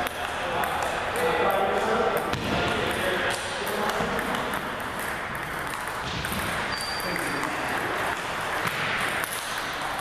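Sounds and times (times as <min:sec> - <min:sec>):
people talking: 0:00.0 - 0:04.7, 0:06.9 - 0:08.3
table tennis balls clicking: 0:00.0 - 0:10.0.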